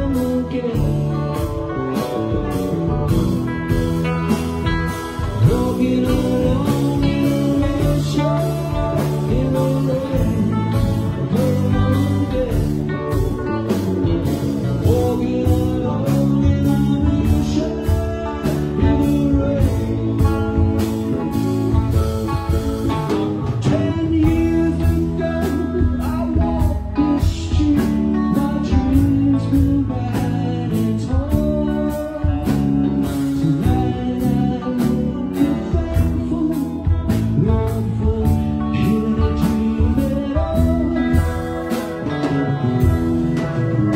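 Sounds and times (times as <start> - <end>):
drum kit beat: 0.0 - 43.9
electric bass: 0.0 - 43.9
electric guitar: 0.0 - 43.9
keyboards: 0.0 - 43.9.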